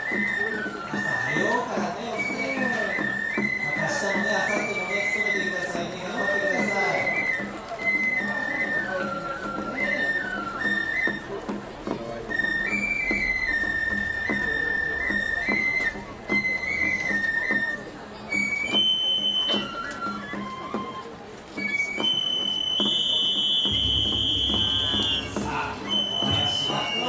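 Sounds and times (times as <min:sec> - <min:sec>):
bamboo flute melody: 0:00.0 - 0:27.0
sharp percussion strikes: 0:23.6 - 0:27.0.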